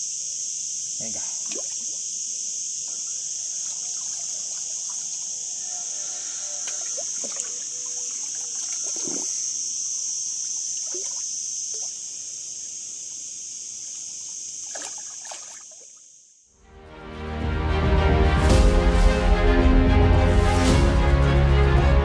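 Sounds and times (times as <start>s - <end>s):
cicadas buzzing: 0.0s - 16.6s
small water sounds: 1.0s - 2.2s, 2.9s - 5.6s, 6.5s - 9.6s, 10.3s - 12.7s, 13.8s - 16.2s.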